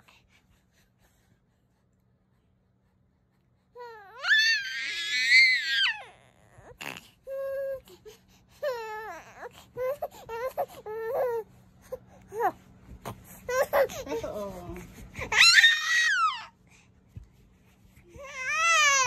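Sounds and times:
baby whimpering: 0:03.8 - 0:16.6, 0:18.1 - 0:19.0
baby crying: 0:15.2 - 0:16.5, 0:18.2 - 0:19.0.

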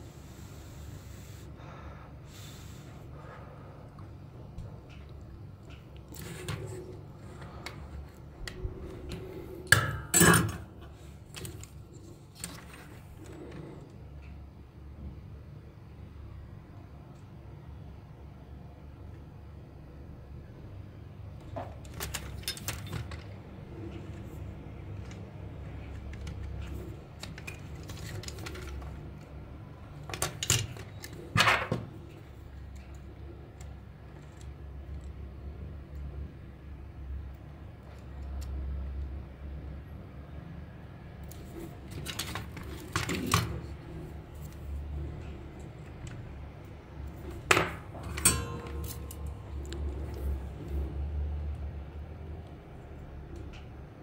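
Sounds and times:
low steady hum: 0:00.0 - 0:54.0
soldering iron clinking into stand: 0:47.6 - 0:49.3.

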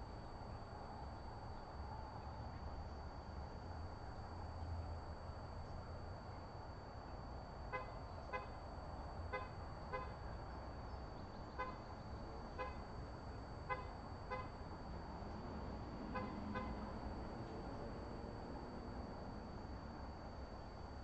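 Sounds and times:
faint high whine: 0:00.0 - 0:21.0
nasal horn-like beeps: 0:07.6 - 0:08.7, 0:09.3 - 0:10.4, 0:11.5 - 0:15.0, 0:16.0 - 0:17.0.

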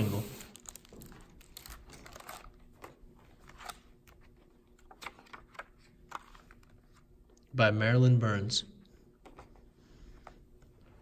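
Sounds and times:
book pages turning: 0:00.5 - 0:07.1.

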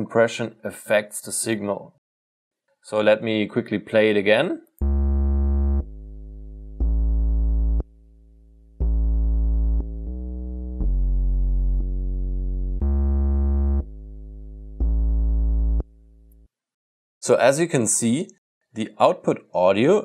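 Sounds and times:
synthesizer bass notes: 0:04.8 - 0:16.5.

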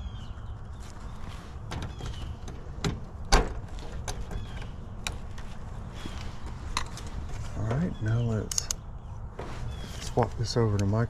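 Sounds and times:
tools and parts clicking: 0:08.5 - 0:08.8.

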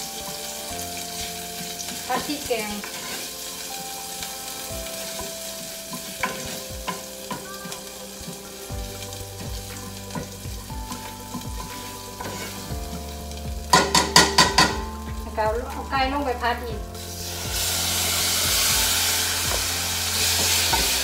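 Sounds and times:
paste sizzling in oil: 0:00.0 - 0:21.0
spatula tapping pan: 0:04.2 - 0:08.4, 0:09.4 - 0:15.9, 0:18.5 - 0:21.0.

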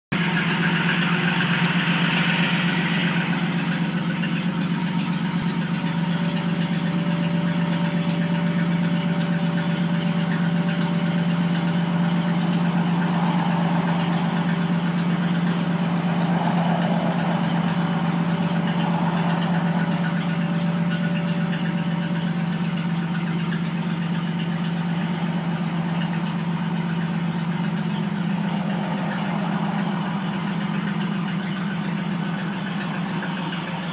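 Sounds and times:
fire engine idling: 0:00.1 - 0:33.9.

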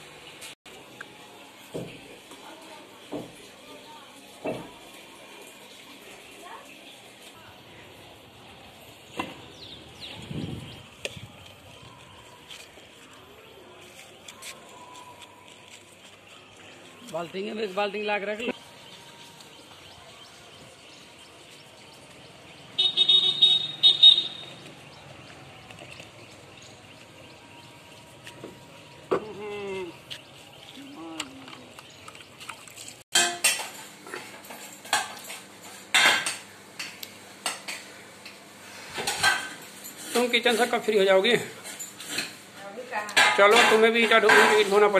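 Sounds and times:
dishes clanking in steel sink: 0:33.1 - 0:35.3.

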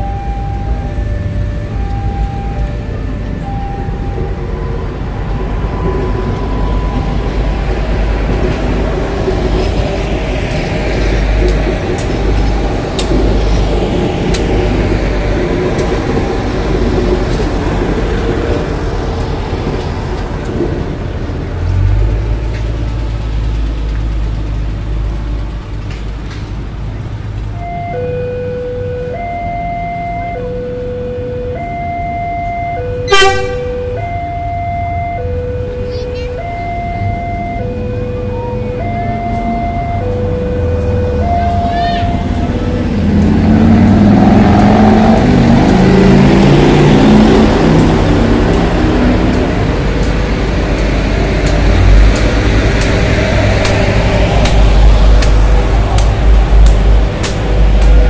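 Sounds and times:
two-tone crossing alarm: 0:00.0 - 0:08.4, 0:10.5 - 0:17.4, 0:27.5 - 0:58.0
train wheels clacking on rails: 0:04.2 - 0:27.5, 0:41.5 - 0:58.0
train horn blast: 0:33.0 - 0:33.8.

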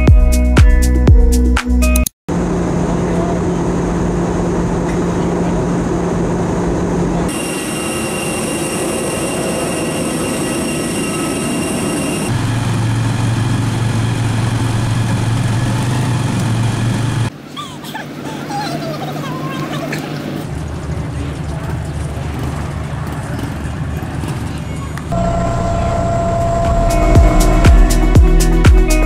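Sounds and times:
airliner cabin drone: 0:02.3 - 0:29.0
motorcycle engine running: 0:12.3 - 0:17.3, 0:20.5 - 0:29.0.

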